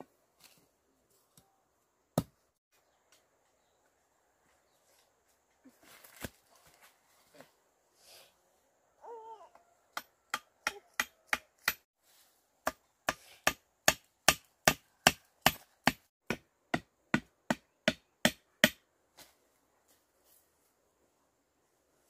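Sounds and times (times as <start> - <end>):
hand tool striking ground: 12.6 - 18.8.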